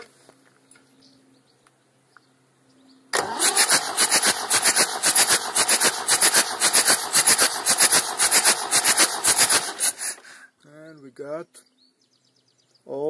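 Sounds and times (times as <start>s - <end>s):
diesel engine cranking on starter: 3.2s - 10.4s.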